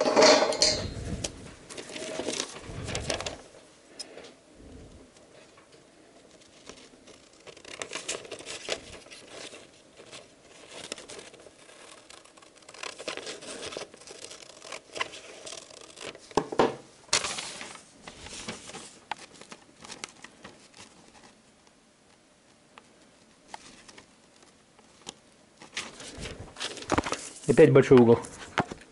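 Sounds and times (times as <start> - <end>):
paper rustling and crinkling: 1.0 - 3.6, 5.2 - 16.5, 17.1 - 21.4, 22.8 - 28.9
scissors snipping paper: 6.6 - 16.2.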